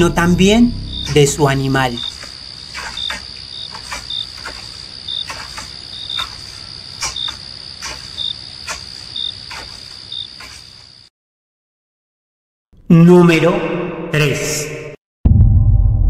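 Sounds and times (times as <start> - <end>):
insects trilling and chirping: 0.4 - 11.1
sharp insect clicks: 1.9 - 10.6.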